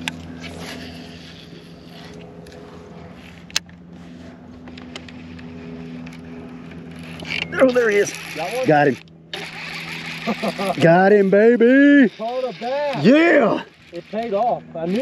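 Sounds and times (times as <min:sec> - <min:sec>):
electric trolling motor hum: 0:00.0 - 0:15.0
fishing reel casting and reeling: 0:00.0 - 0:15.0.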